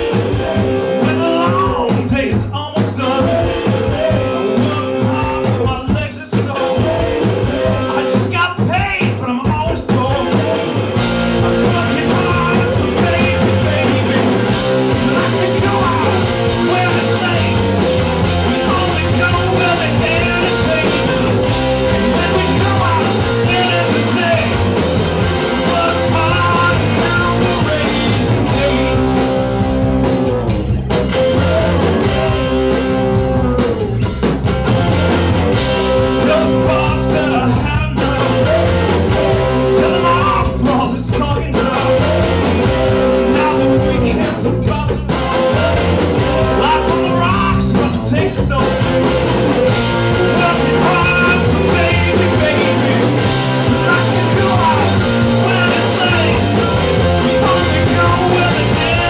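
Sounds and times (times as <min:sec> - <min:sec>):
person singing lead vocals: 0:00.0 - 0:30.4, 0:31.0 - 0:34.1, 0:35.5 - 0:59.0
distorted electric guitars: 0:00.0 - 0:59.0
drum kit: 0:00.0 - 0:59.0.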